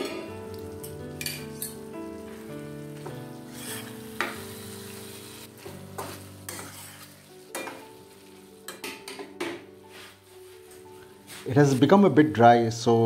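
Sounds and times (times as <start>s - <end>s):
vegetables sizzling in wok: 0.0s - 9.2s, 9.8s - 11.5s
soft background music: 0.0s - 13.0s
spatula clinking on pan: 6.0s - 7.9s.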